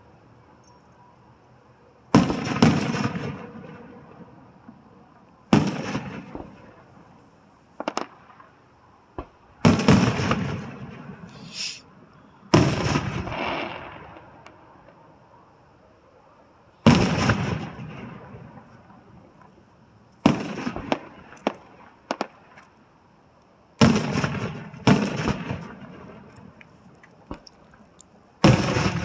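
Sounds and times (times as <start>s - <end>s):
sharp firework pops: 2.1s - 3.8s, 5.5s - 6.7s, 7.8s - 8.5s, 9.1s - 11.7s, 12.5s - 15.0s, 16.8s - 18.7s, 20.2s - 22.8s, 23.8s - 27.6s, 28.4s - 29.0s
firework shells booming: 2.1s - 4.8s, 5.5s - 6.9s, 7.8s - 11.8s, 12.5s - 14.6s, 16.8s - 18.8s, 20.2s - 22.5s, 23.8s - 26.6s, 28.4s - 29.0s.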